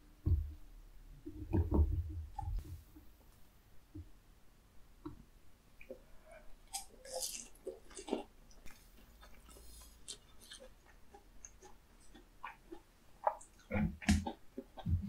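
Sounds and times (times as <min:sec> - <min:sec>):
crisp chewing crunches: 0:06.6 - 0:15.0
wet mouth sounds: 0:06.7 - 0:15.0.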